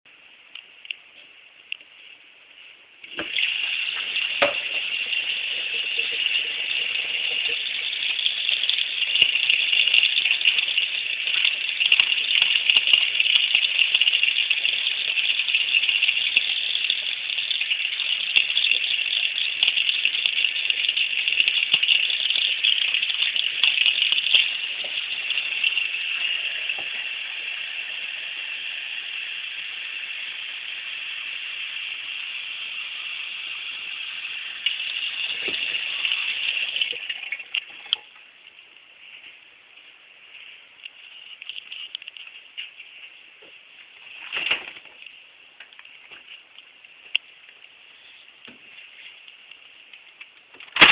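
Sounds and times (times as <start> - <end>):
faucet water splashing into sink: 3.1 - 38.2.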